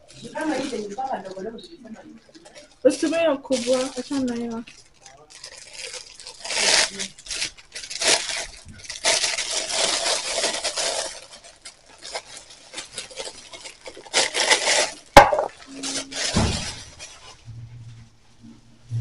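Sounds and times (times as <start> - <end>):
plastic wrapping crinkling: 0.0 - 17.5
cup knocking on counter: 15.2 - 15.5.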